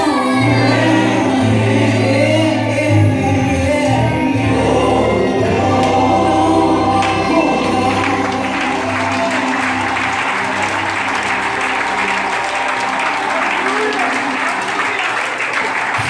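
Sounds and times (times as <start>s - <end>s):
gospel song with singing: 0.0s - 14.9s
congregation applauding: 7.0s - 16.0s.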